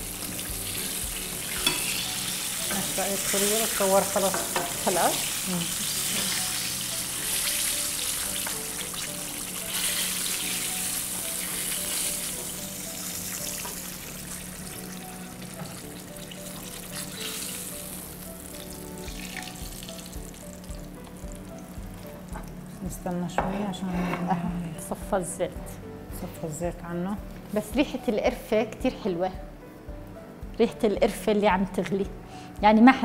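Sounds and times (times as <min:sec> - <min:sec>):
fish frying in hot oil: 0:00.0 - 0:22.4.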